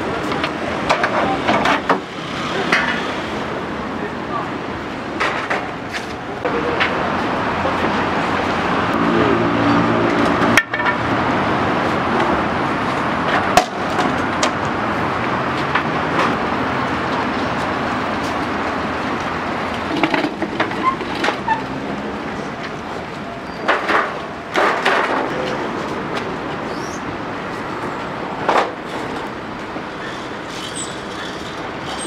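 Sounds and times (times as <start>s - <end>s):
city road traffic: 0.0s - 32.0s
large vehicle engine passing: 7.4s - 12.7s.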